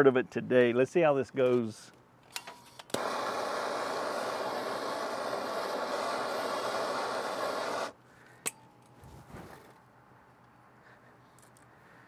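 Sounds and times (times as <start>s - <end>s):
gas torch hissing: 2.9s - 8.0s.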